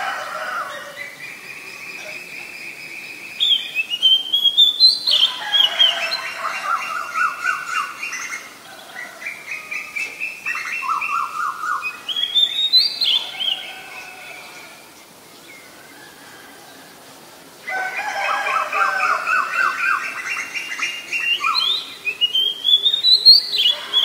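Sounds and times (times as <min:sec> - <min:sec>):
bird singing whistled trills: 0:01.0 - 0:05.9, 0:09.6 - 0:13.7, 0:19.3 - 0:24.0.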